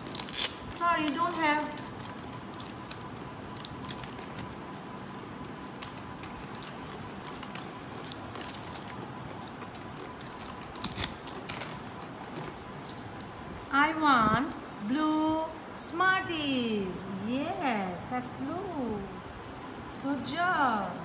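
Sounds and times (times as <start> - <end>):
picture cards clicking and rasping: 0.0 - 13.3.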